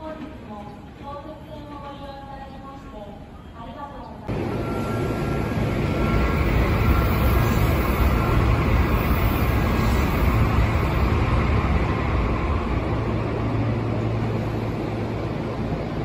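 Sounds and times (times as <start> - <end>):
electric train rumbling: 4.3 - 16.0.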